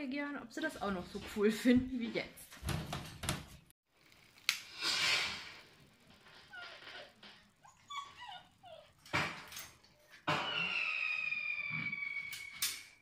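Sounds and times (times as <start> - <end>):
puppies whimpering and yipping: 7.6 - 9.0.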